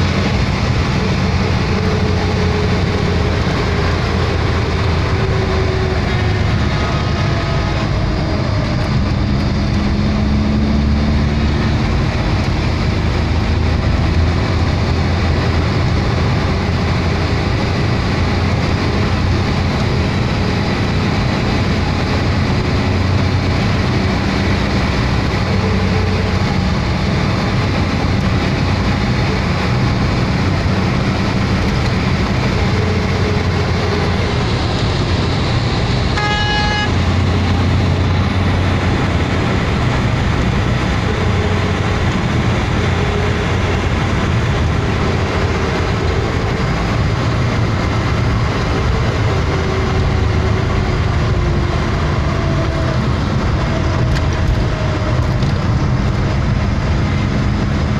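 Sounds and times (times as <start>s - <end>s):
engine and road noise: 0.0s - 57.9s
vehicle horn honk: 36.1s - 37.1s.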